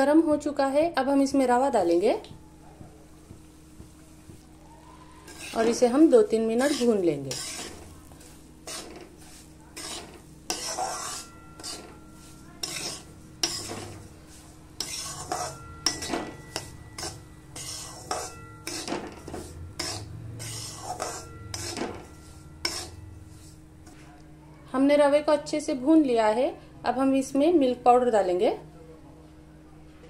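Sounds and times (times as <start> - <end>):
spatula scraping a steel pan: 5.2 - 24.0.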